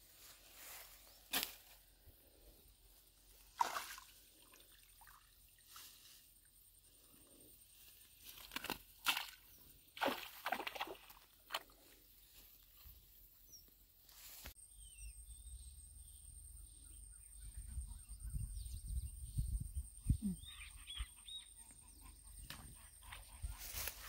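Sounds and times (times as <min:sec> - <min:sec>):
splashes in shallow water: 0:03.5 - 0:05.7, 0:08.5 - 0:11.7.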